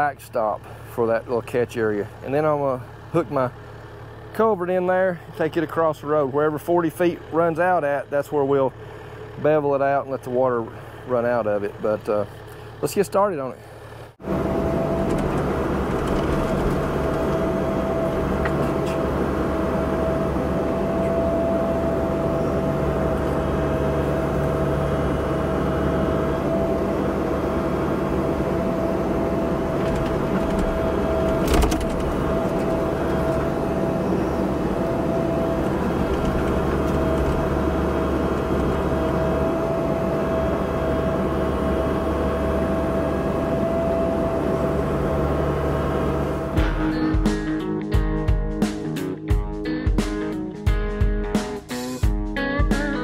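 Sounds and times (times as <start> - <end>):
excavator diesel engine droning: 0.0 - 47.8
high whine: 14.2 - 53.0.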